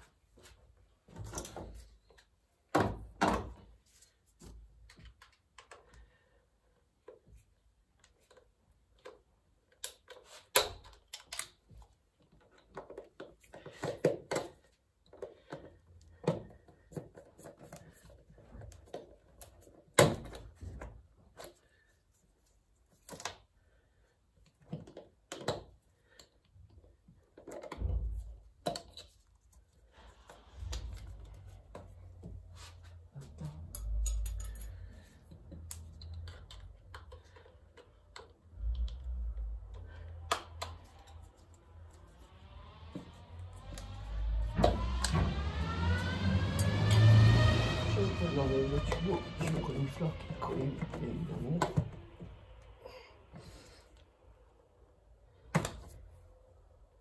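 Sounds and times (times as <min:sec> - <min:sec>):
metal tools clicking and clinking: 0:33.7 - 0:35.0.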